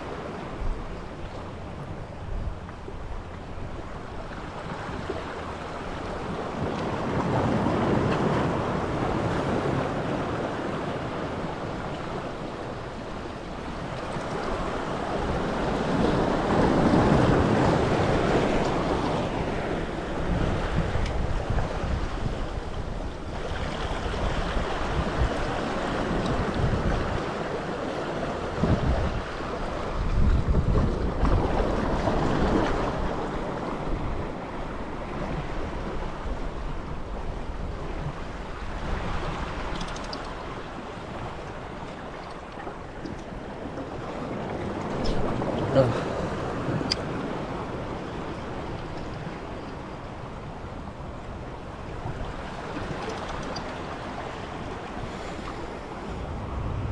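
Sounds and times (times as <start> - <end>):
surf washing on rocky shore: 0.0 - 56.9
wind buffeting microphone: 0.0 - 56.9.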